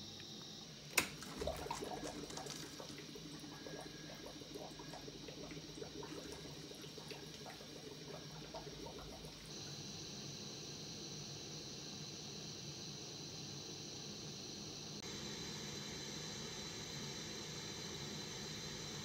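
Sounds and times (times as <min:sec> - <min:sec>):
water trickling and bubbling: 0:00.8 - 0:09.6.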